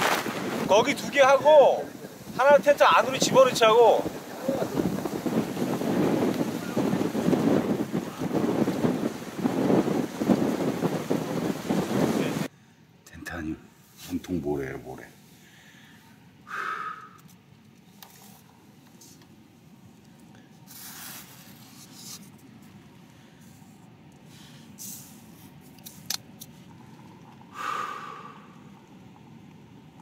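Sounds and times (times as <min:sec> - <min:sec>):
strong wind against a tent: 0:00.0 - 0:12.5
short breathy noises: 0:15.4 - 0:17.3
rustles: 0:17.2 - 0:26.8.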